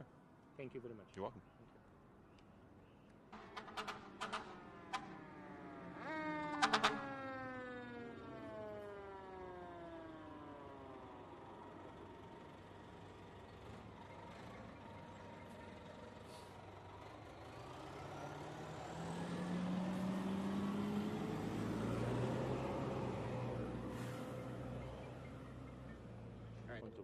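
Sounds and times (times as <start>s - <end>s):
street traffic: 0.0s - 27.0s
siren wailing: 3.4s - 11.9s
heavy vehicle engine accelerating: 3.4s - 26.9s.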